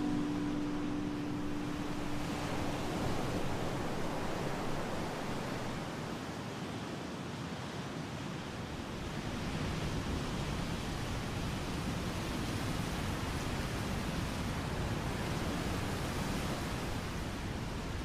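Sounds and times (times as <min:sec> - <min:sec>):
steady rushing noise: 0:00.0 - 0:06.2.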